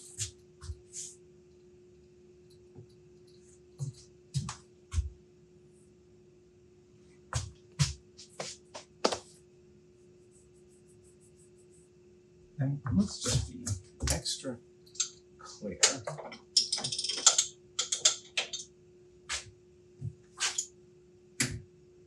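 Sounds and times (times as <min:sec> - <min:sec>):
steady low hum: 0:00.0 - 0:22.0
metallic clicks of tooling: 0:15.9 - 0:18.6.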